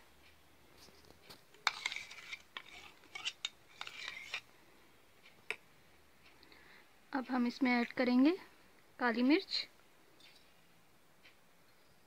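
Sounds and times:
spoon scraping and clinking bowl: 0:01.6 - 0:04.5.

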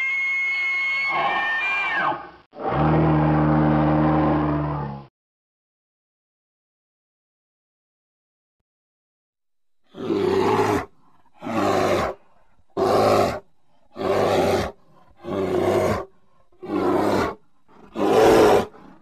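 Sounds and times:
bear growling: 0:09.9 - 0:19.0.

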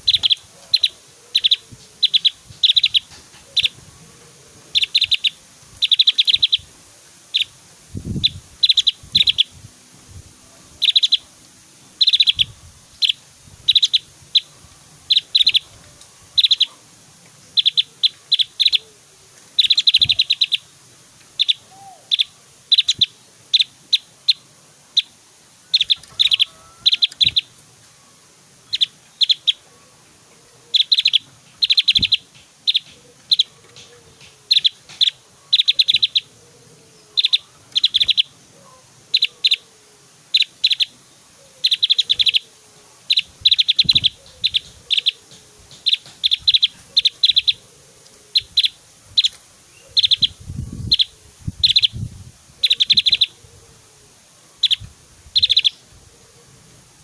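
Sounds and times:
bird chirping rapidly: 0:00.0 - 0:03.8, 0:04.7 - 0:06.7, 0:07.3 - 0:09.6, 0:10.7 - 0:15.7, 0:16.4 - 0:16.8, 0:17.5 - 0:18.8, 0:19.6 - 0:20.7, 0:21.3 - 0:27.5, 0:28.6 - 0:29.7, 0:30.7 - 0:36.4, 0:37.2 - 0:38.4, 0:39.1 - 0:39.6, 0:40.3 - 0:41.0, 0:41.6 - 0:42.5, 0:43.1 - 0:47.6, 0:48.3 - 0:53.4, 0:54.6 - 0:55.8.

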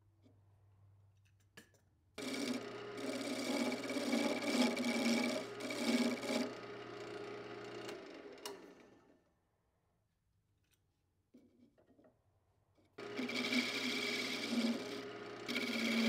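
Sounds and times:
turning tool cutting wood: 0:02.2 - 0:08.6, 0:13.0 - 0:16.0
wood lathe spinning: 0:02.2 - 0:08.9, 0:13.0 - 0:16.0.

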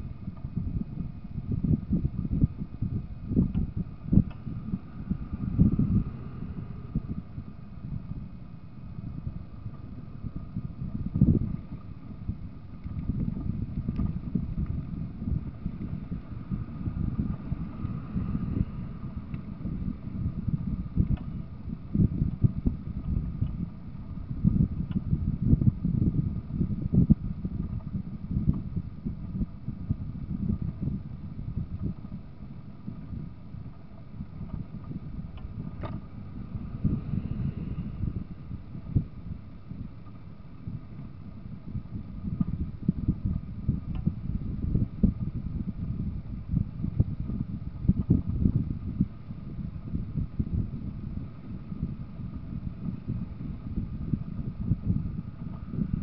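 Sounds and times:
road and engine rumble: 0:00.0 - 0:56.0
tyre and wind noise in car: 0:00.0 - 0:56.0.

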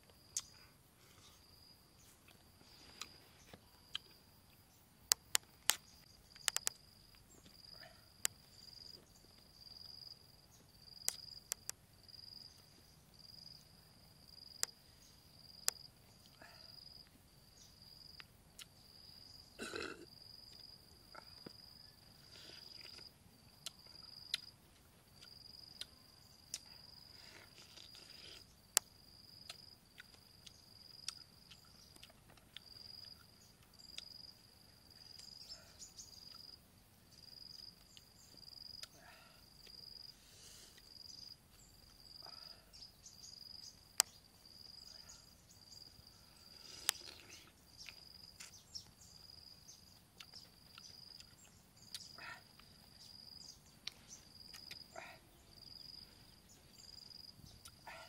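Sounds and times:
insect calling: 0:00.0 - 0:58.0
mouth eating sounds: 0:19.6 - 0:20.6, 0:26.5 - 0:28.5, 0:46.5 - 0:48.6, 0:50.2 - 0:52.8, 0:53.8 - 0:55.3.

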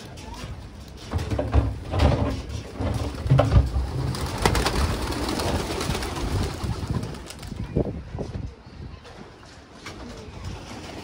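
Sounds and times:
pigeon wings flapping: 0:02.8 - 0:07.7.

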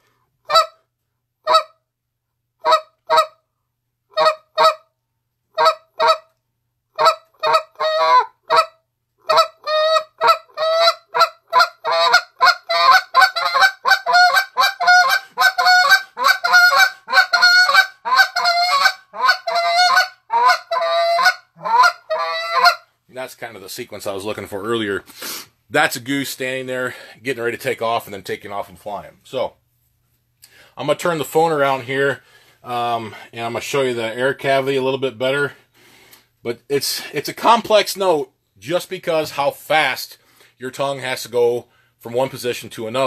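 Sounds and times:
goose call spit notes: 0:09.3 - 0:22.8.

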